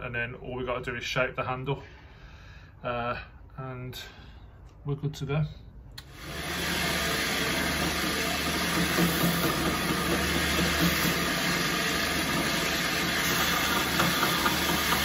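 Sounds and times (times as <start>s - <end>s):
belt grinder motor hum: 6.0s - 15.0s
sanding hiss: 6.3s - 15.0s.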